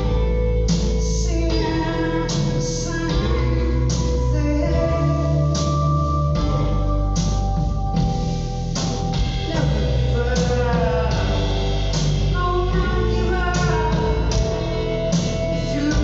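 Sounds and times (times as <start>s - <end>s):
woman singing: 0.8s - 6.8s, 9.5s - 16.0s
distant live band music: 3.9s - 16.0s.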